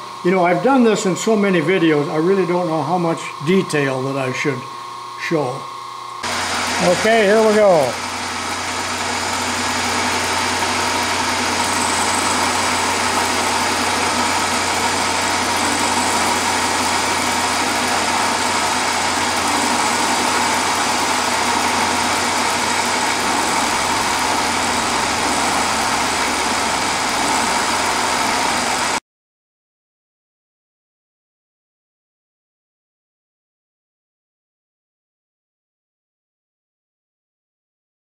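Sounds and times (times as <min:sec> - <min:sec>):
milling machine motor hum: 0:00.0 - 0:29.0
end mill cutting metal: 0:06.2 - 0:29.0.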